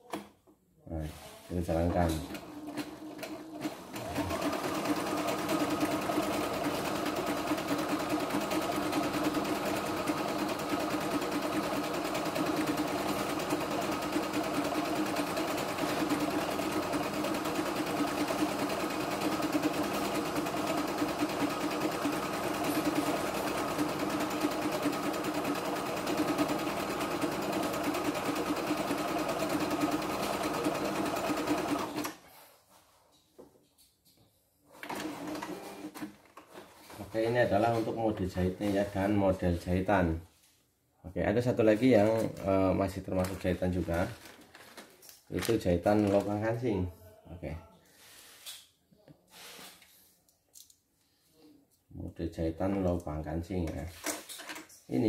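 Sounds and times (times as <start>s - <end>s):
sewing machine running: 2.3s - 32.2s, 34.8s - 36.1s.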